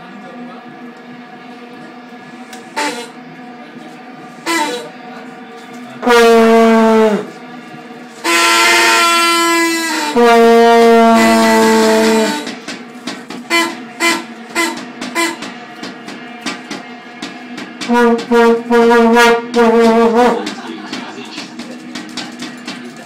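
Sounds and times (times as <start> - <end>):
vuvuzela blasts: 6.0 - 7.3, 8.2 - 12.5, 13.5 - 15.6, 17.8 - 20.4.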